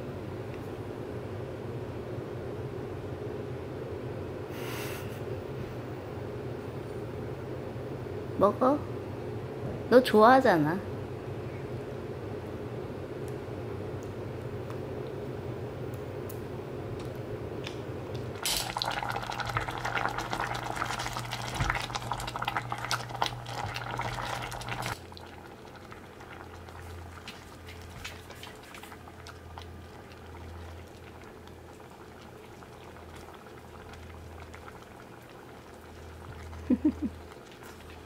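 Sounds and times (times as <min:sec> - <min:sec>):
steady low hum: 0:00.0 - 0:38.0
food bubbling in a pot: 0:18.1 - 0:38.0.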